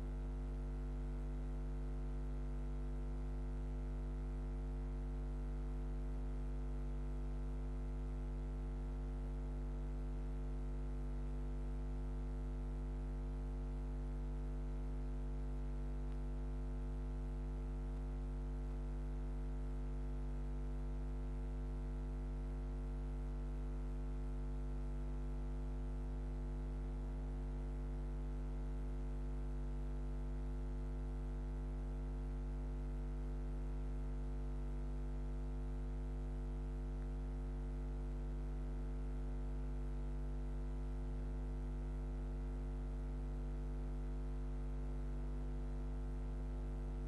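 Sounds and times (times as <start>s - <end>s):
electrical mains hum: 14.8s - 20.0s, 34.4s - 40.4s.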